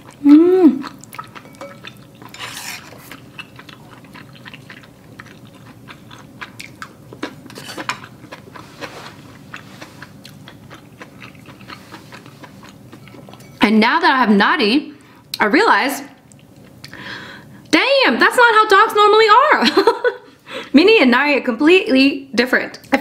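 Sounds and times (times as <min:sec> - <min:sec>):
person chewing with mouth clicks: 0:00.0 - 0:13.5, 0:16.2 - 0:17.0.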